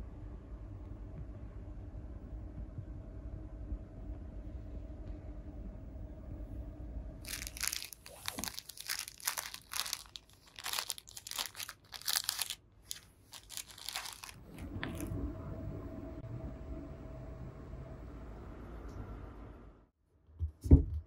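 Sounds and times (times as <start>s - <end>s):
plastic packaging crinkling: 7.3s - 15.1s.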